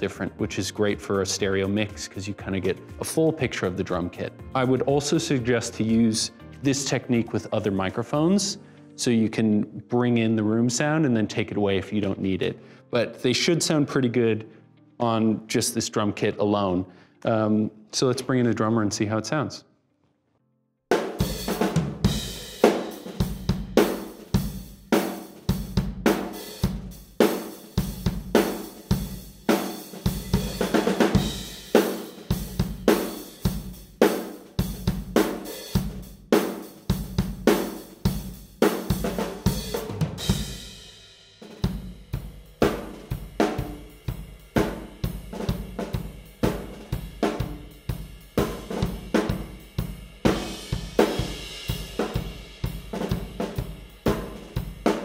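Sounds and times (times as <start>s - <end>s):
acoustic drum kit groove: 0.0s - 8.3s, 20.9s - 55.0s.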